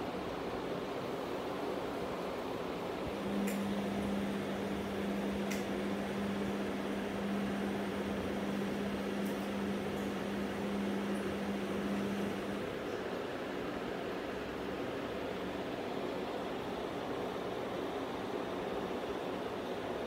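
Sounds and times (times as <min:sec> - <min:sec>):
low equipment hum: 0:03.0 - 0:13.2.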